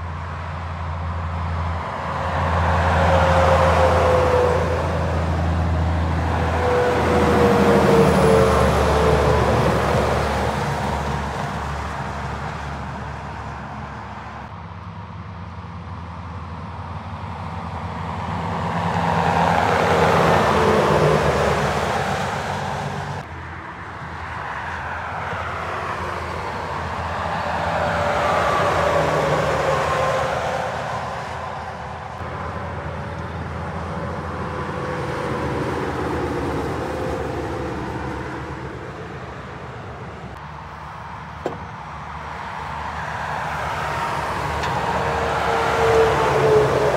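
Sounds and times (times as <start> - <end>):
trucks passing on highway: 0.0 - 46.9.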